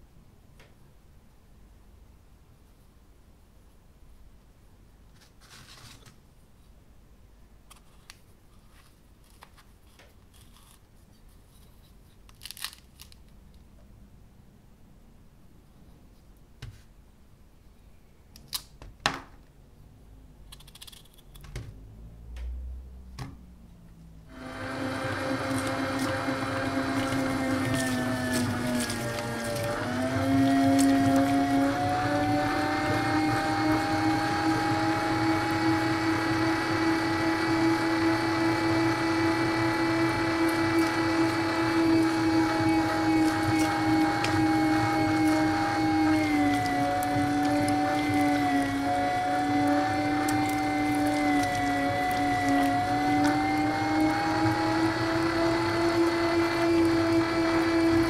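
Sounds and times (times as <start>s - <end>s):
meat grinder motor whining: 24.3s - 58.0s.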